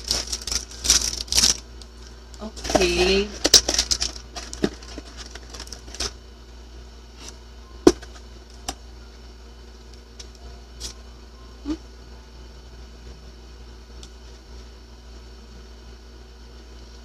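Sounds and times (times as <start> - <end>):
small items clicking in hands: 0.0 - 1.9
low steady hum: 0.0 - 17.0.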